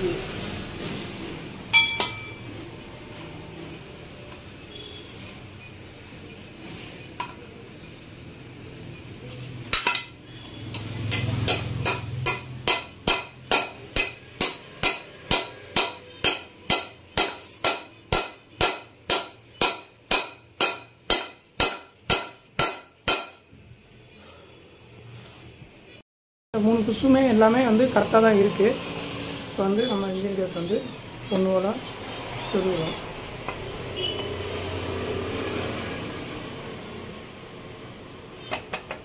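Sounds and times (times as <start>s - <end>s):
hammer striking metal: 1.7s - 2.5s, 9.7s - 23.4s.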